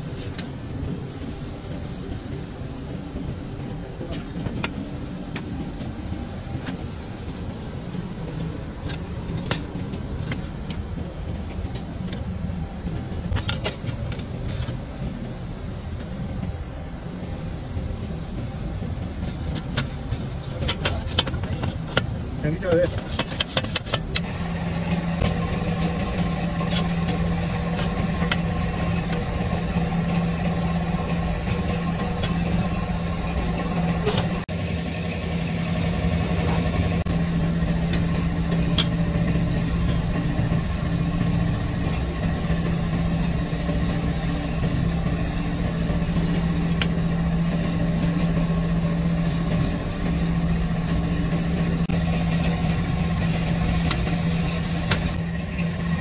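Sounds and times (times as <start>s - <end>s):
engine idling drone: 24.0s - 56.0s.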